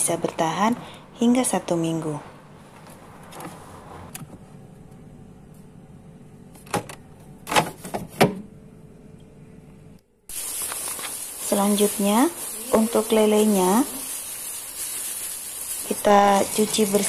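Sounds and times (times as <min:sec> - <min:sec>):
faint steady hum: 0:08.3 - 0:11.7.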